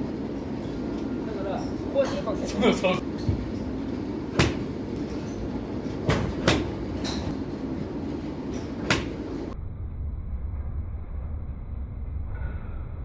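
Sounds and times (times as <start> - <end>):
low rumble: 9.2 - 13.0.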